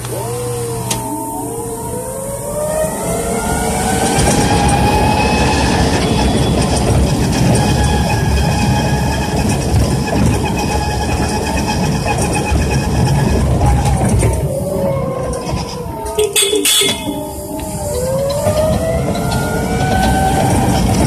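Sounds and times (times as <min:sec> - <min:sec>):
electric motor whining: 0:00.0 - 0:21.0
vehicle travel rumble: 0:00.0 - 0:21.0.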